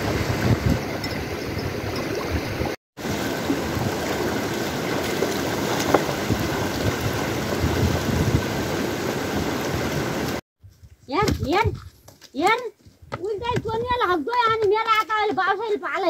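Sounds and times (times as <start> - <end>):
stream running over rocks: 0.0 - 10.4
wind rumbling on microphone: 0.0 - 12.1, 12.8 - 14.5.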